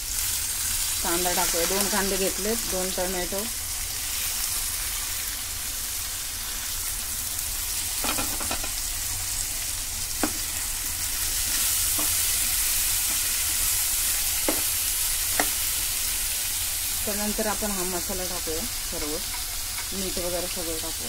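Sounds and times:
onion and tomato sizzling in oil: 0.0s - 21.0s.

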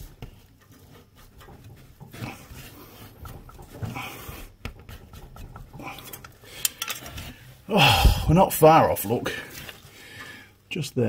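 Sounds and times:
man grunting and breathing hard: 7.7s - 8.5s.

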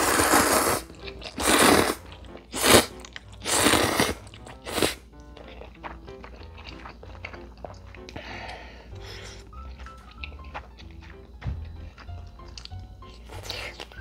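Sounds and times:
person slurping noodles: 0.0s - 5.1s
person chewing quietly: 0.0s - 14.0s.

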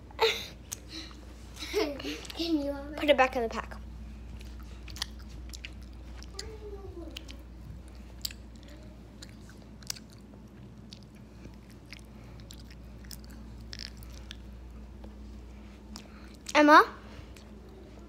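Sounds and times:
person chewing: 4.3s - 6.5s, 7.1s - 16.6s, 17.3s - 17.8s.

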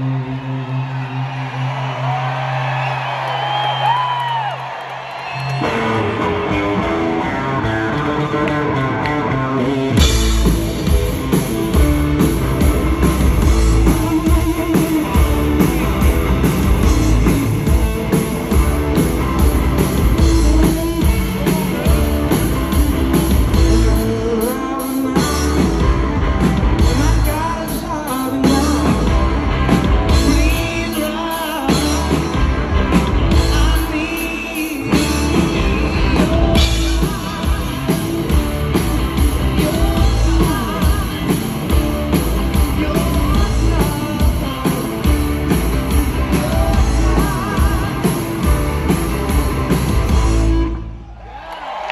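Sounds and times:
live rock band playing: 5.3s - 51.0s
person singing: 13.4s - 18.7s, 19.4s - 26.0s, 26.8s - 29.5s, 30.1s - 32.4s, 33.2s - 49.8s.

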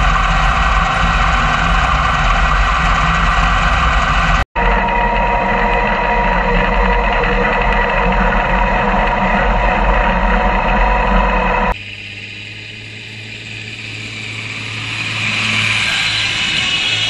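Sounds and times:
tractor diesel engine under load: 0.0s - 11.8s.

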